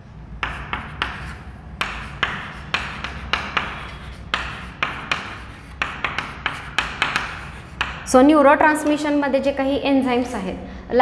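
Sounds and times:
chalk scratching on chalkboard: 0.4s - 8.1s.

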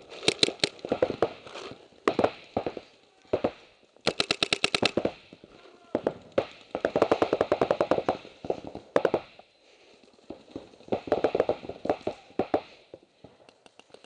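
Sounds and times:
paintball markers firing rapidly: 0.2s - 1.4s, 2.0s - 5.3s, 6.0s - 9.4s, 10.3s - 13.0s.

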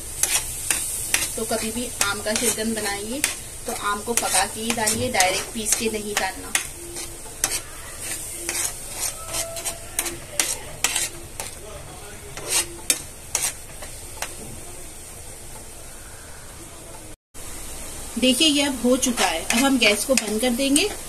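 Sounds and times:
spoon scraping frying pan: 0.0s - 11.6s, 12.3s - 14.4s, 19.2s - 21.0s
low sizzle: 0.0s - 21.0s.

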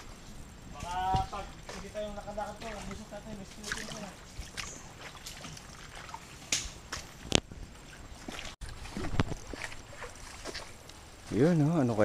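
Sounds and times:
footsteps squelching in mud: 2.6s - 11.4s.

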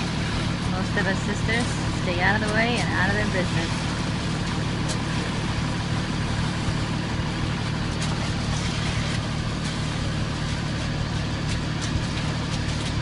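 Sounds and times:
diesel engine idling: 0.0s - 13.0s
rakes scraping wet concrete: 0.0s - 13.0s.

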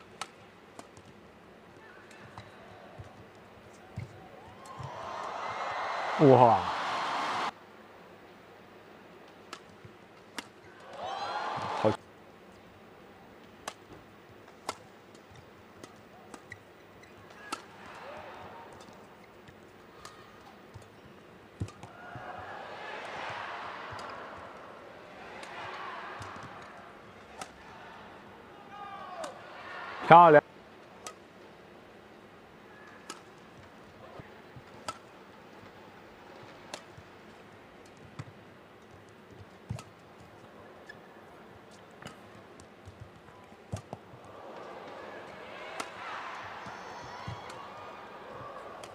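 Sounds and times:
arena background noise: 0.0s - 48.9s
rackets striking shuttlecock: 21.6s - 27.6s, 32.9s - 33.4s, 39.4s - 40.0s, 42.0s - 48.9s.

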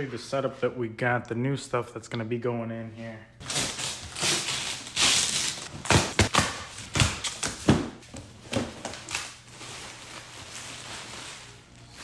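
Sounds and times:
tape ripping off cardboard: 3.4s - 7.7s
cardboard and plastic rustling: 3.4s - 12.0s.

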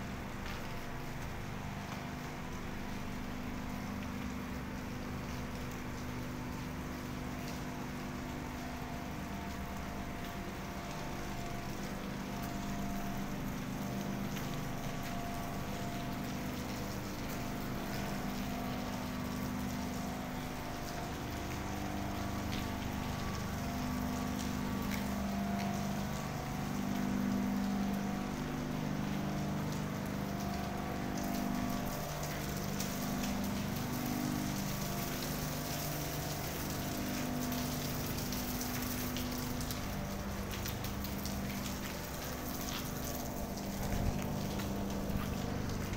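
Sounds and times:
industrial machinery humming: 42.0s - 45.9s.

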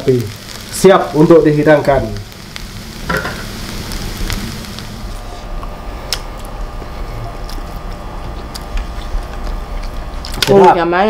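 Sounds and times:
rice sizzling in a wok: 0.0s - 7.4s
steady low hum: 0.0s - 11.0s.

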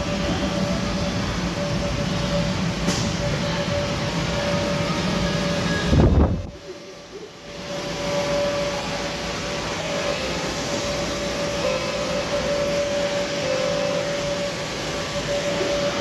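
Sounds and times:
air blowers humming: 0.0s - 16.0s.

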